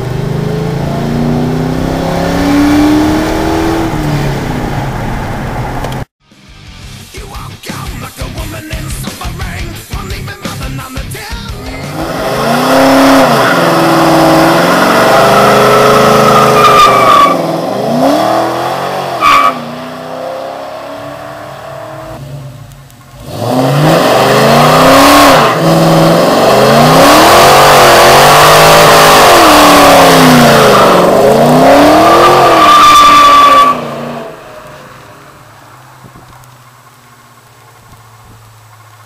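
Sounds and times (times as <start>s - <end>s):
car engine revving hard: 0.0s - 5.7s, 11.7s - 22.6s, 23.2s - 34.6s
tyres squealing: 14.5s - 17.5s.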